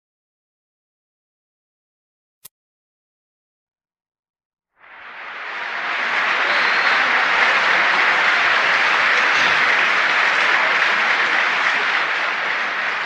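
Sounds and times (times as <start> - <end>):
crowd applauding: 4.8 - 13.0.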